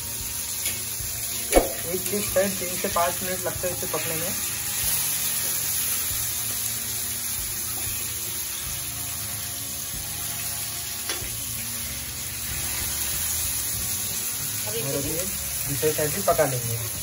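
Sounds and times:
fish sizzling in oil: 0.0 - 17.0
sharp tap on pan: 1.5 - 1.9.

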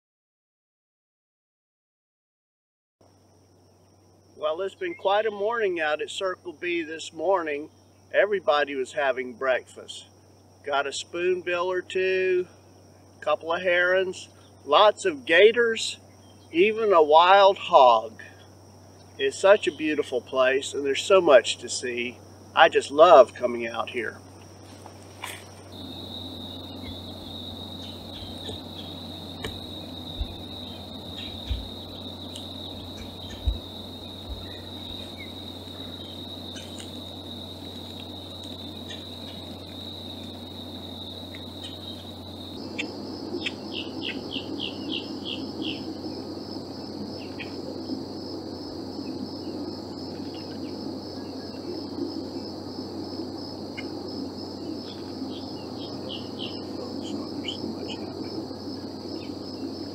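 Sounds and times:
insects trilling: 3.0 - 59.9
pulsing insect trill: 3.0 - 59.9
bird chirps: 25.9 - 36.9.

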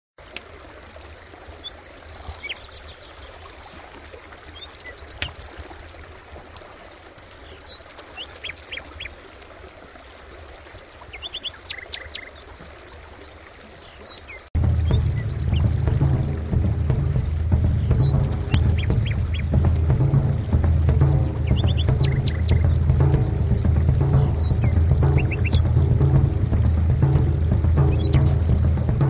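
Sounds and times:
birds chirping: 0.2 - 29.0
low steady hum: 14.6 - 29.0
buzzy bird trill: 14.8 - 26.5.

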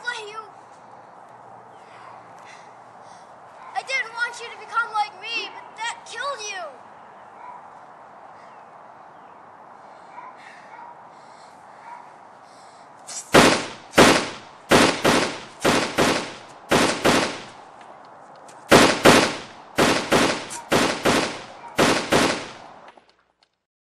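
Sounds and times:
gunshots echoing: 13.3 - 17.6, 18.7 - 22.8.

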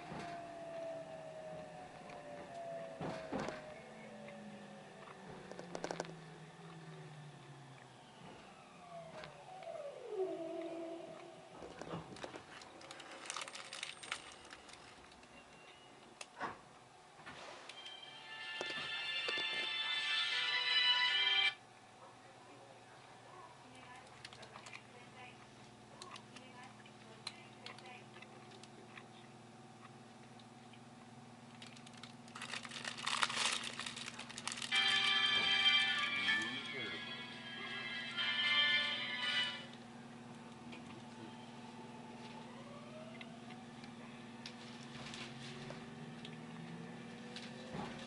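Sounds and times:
train running hum: 0.0 - 15.4, 17.7 - 28.0, 31.6 - 48.0
level-crossing bell ringing: 34.6 - 39.7.

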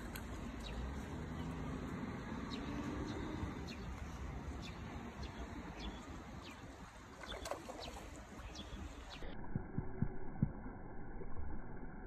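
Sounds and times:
birds chirping: 0.0 - 9.4.

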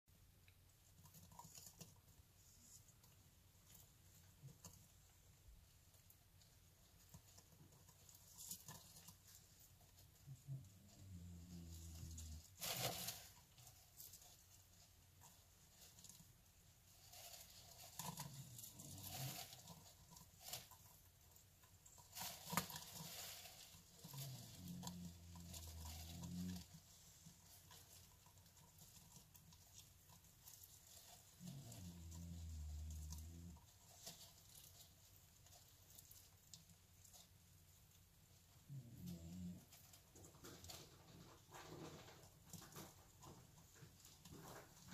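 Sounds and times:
light scratches and clicks: 0.4 - 44.9.

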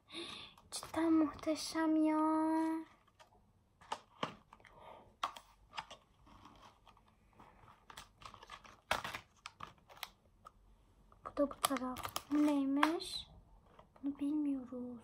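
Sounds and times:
plastic packaging crinkling: 5.2 - 10.2, 11.3 - 13.2
packaging tearing: 7.8 - 10.2, 11.5 - 13.0.

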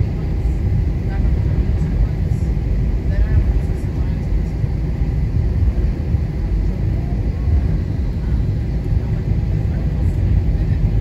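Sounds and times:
jet engines and wheels rumbling: 0.0 - 11.0.

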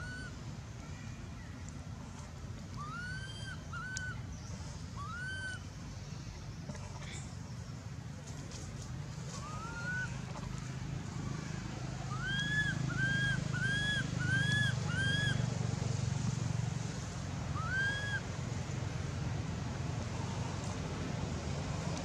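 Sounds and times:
steady low hum: 0.0 - 22.0
infant monkey crying: 5.0 - 5.6, 9.4 - 10.5, 12.1 - 15.4, 17.6 - 18.2.

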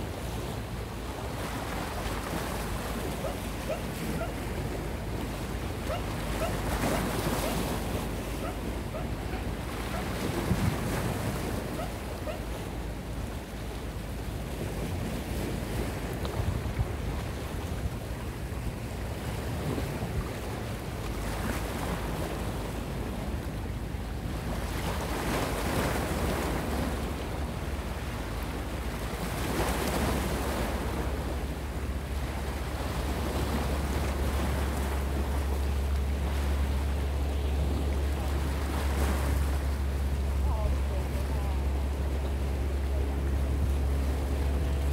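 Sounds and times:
low steady rumble: 0.0 - 44.9
small waves breaking on rocks: 1.4 - 13.6, 24.2 - 42.2.

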